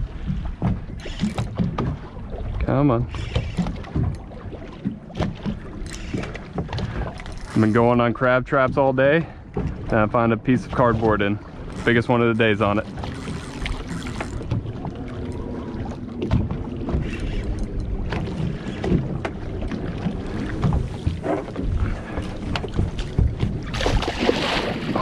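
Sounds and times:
low rumble of water and boat: 0.0 - 25.0
fish splashing: 11.0 - 25.0.

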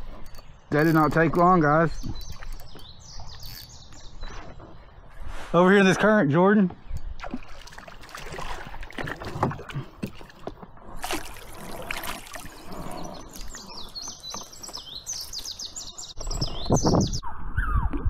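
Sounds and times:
bird chirping rapidly: 0.4 - 4.8, 12.4 - 17.9
fish splashing and thrashing: 7.0 - 15.8.

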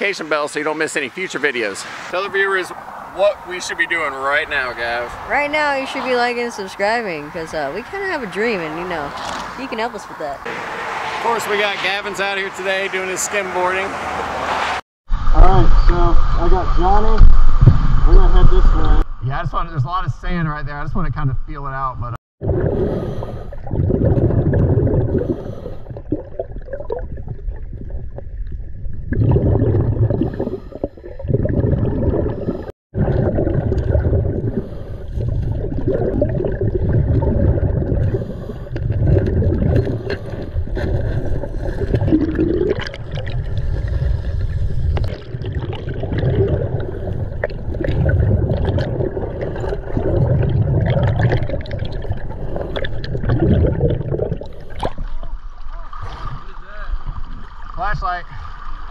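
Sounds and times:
exhaled bubbles gurgling: 22.4 - 58.9
diver breathing through regulator: 22.6 - 23.8, 25.0 - 26.1, 30.1 - 31.1, 34.4 - 35.6, 38.0 - 39.0.

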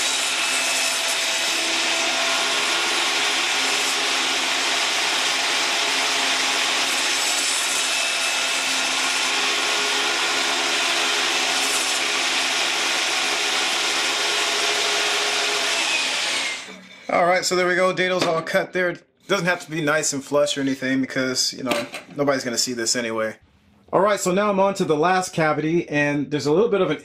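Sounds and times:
vacuum cleaner running: 0.0 - 7.8, 8.4 - 16.8
table saw cutting wood: 0.0 - 17.0.

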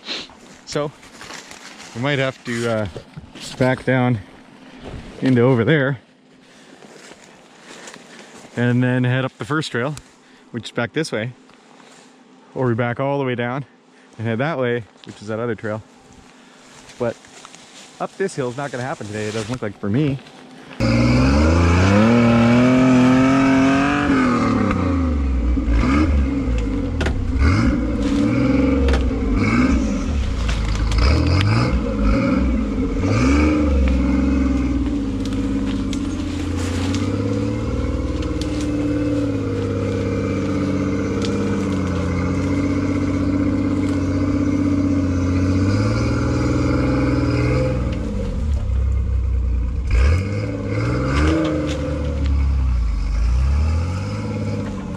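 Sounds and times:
engine revving: 19.1 - 54.9.

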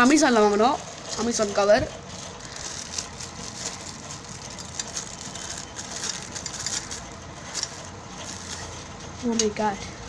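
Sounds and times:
plastic packaging crinkling: 0.9 - 8.7.

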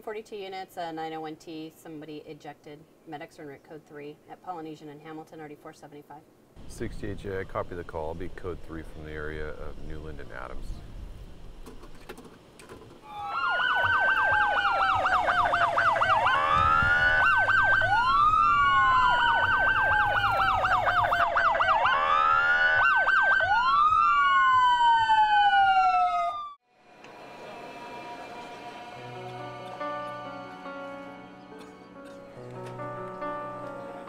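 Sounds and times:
police siren wail and yelp: 13.0 - 26.6.

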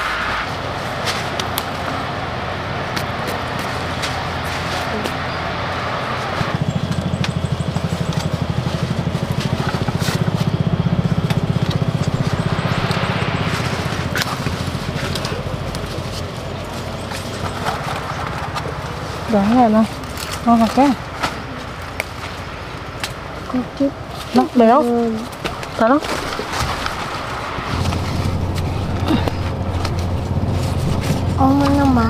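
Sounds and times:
steady hiss: 0.0 - 6.6
engine running: 0.0 - 32.0.

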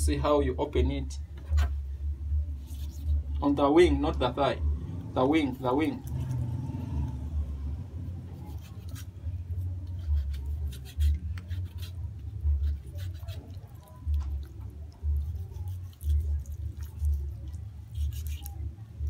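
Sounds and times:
knife cutting through chicken: 8.4 - 14.4, 15.0 - 18.6.

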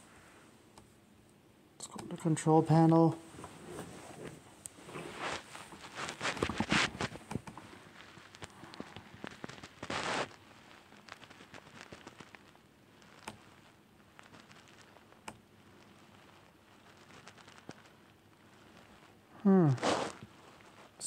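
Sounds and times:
rustling: 3.2 - 21.0
laptop keys and mouse clicking: 13.2 - 13.4, 15.2 - 15.4.

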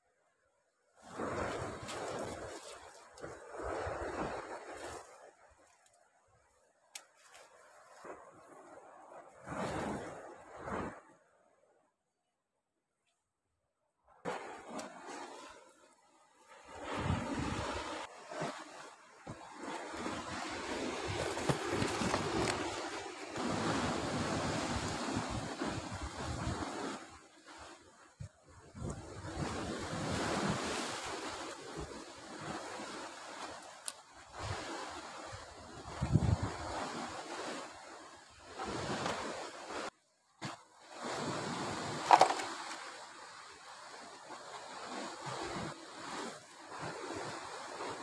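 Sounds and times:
sea waves surging on rocks: 1.1 - 5.4, 14.3 - 48.0
wind buffeting microphone: 16.8 - 18.1, 19.3 - 27.0, 35.3 - 37.5.

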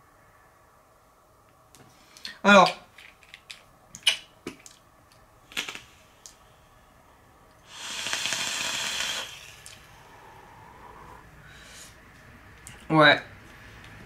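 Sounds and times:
vape coil sizzling and hissing: 7.6 - 10.8.

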